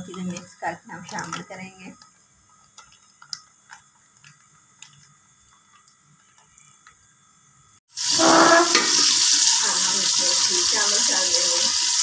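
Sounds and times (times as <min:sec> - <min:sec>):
plastic sachet crinkling: 0:02.6 - 0:06.6.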